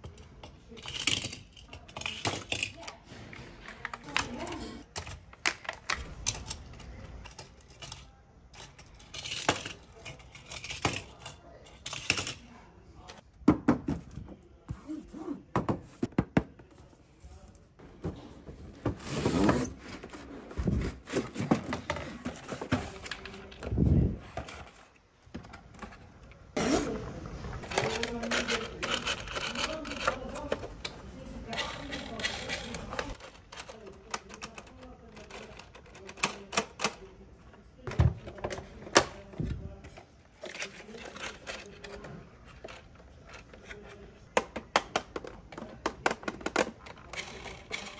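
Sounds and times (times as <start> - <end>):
toy cars clicking and knocking: 0.0 - 3.0, 3.8 - 12.4, 27.7 - 30.9, 31.5 - 37.1, 40.3 - 47.9
box scraping and rustling: 17.8 - 23.3.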